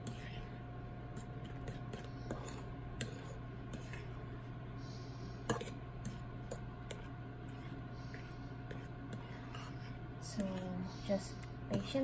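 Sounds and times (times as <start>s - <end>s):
fork stirring wet batter: 0.0s - 12.0s.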